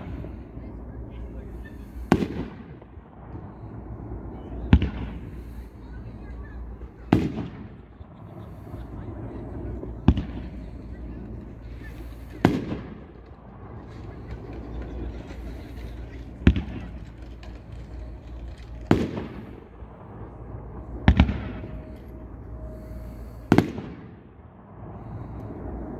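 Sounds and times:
firework aerial bursts banging: 0.0 - 25.9.

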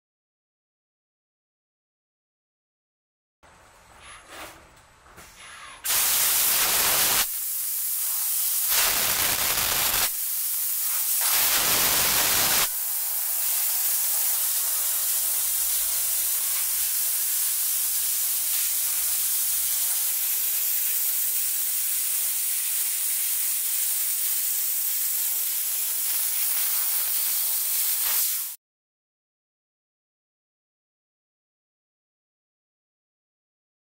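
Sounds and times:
laser cutter assist gas hiss: 5.8 - 28.6.

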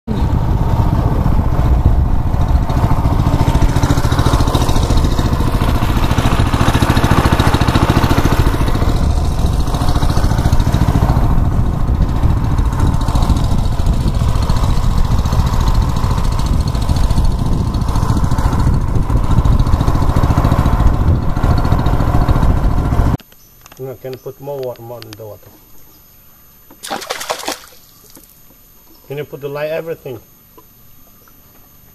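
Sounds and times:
boat motor droning: 0.1 - 23.2.

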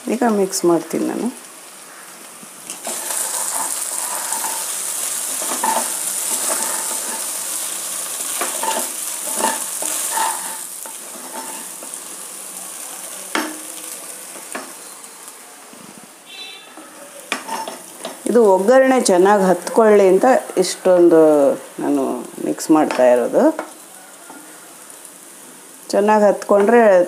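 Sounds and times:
food sizzling in hot oil: 0.0 - 27.0
spatula scraping a pot: 2.8 - 7.4, 8.4 - 11.8, 17.3 - 17.9.

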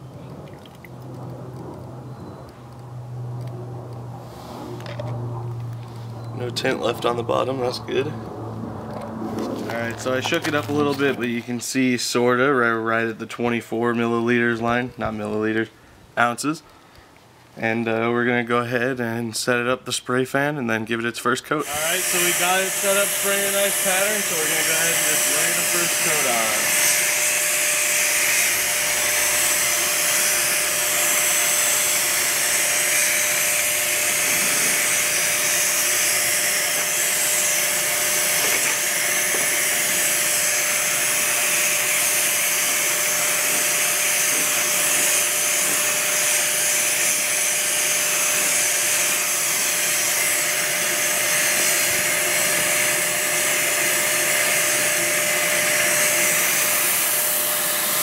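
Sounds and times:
sprayer turbine whine: 0.0 - 13.3, 21.6 - 58.0
air rushing through hose: 4.0 - 4.9, 21.6 - 58.0.

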